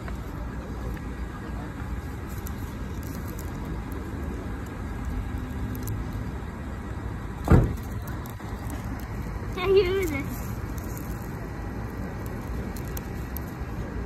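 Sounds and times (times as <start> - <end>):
low outdoor rumble: 0.0 - 14.0
plastic label crinkling: 2.0 - 6.2, 7.8 - 13.9
brief thump: 7.4 - 7.8.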